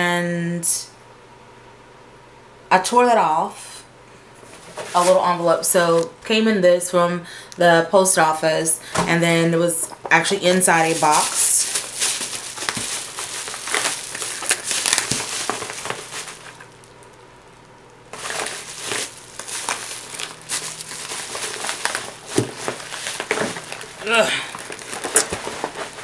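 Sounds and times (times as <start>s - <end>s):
packaging crumpling: 10.2s - 17.2s, 18.1s - 26.0s.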